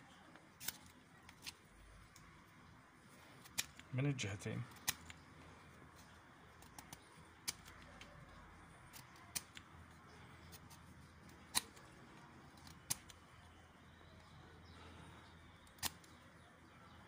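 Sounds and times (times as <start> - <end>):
knife slicing wood with sharp clicks: 10.4 - 12.0, 12.6 - 13.2, 15.6 - 16.2.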